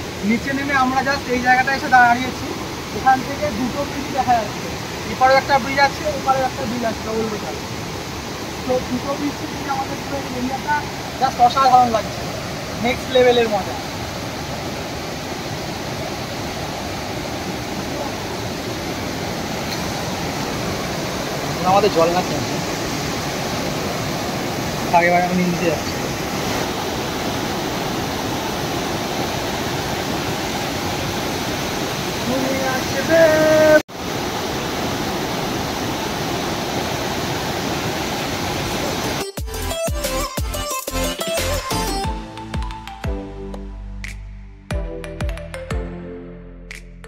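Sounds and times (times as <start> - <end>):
stream rushing over boulders: 0.0 - 39.3
music: 39.2 - 47.0.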